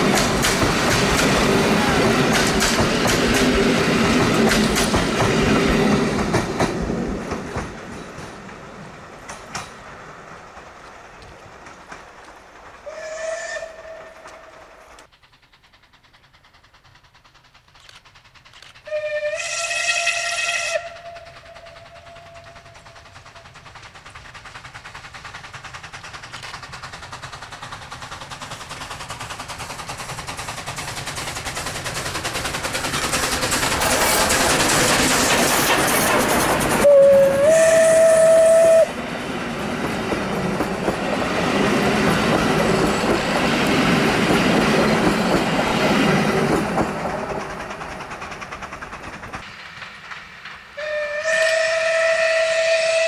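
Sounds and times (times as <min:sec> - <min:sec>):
steam train running: 0:00.0 - 0:53.0
steam locomotive whistle: 0:12.8 - 0:14.7, 0:18.8 - 0:23.5, 0:36.8 - 0:39.0, 0:50.7 - 0:53.0.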